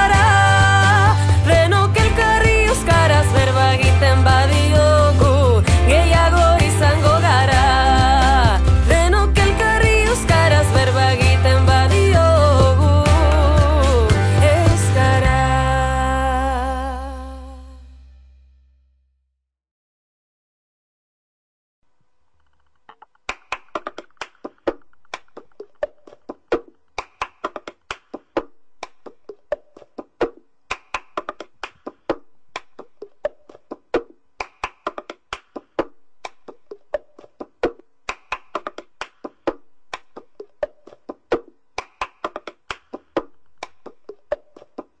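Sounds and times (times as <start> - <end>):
hand claps: 2.0 - 15.0, 23.1 - 45.0.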